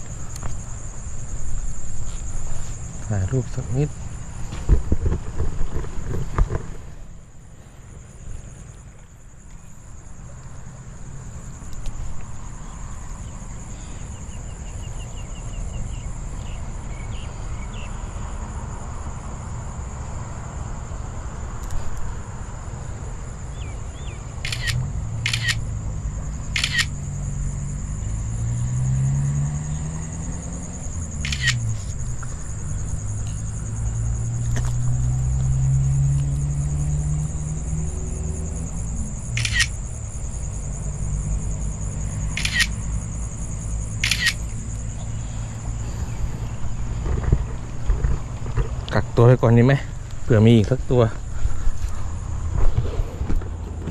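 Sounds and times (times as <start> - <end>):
phone camera shutter clicks: 24.4 - 25.6, 26.6 - 26.9, 31.2 - 31.6, 39.4 - 39.8, 42.4 - 42.8, 44.0 - 44.4.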